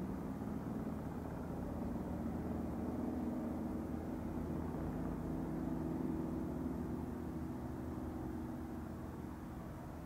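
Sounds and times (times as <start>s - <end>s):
low engine hum: 0.0s - 10.0s.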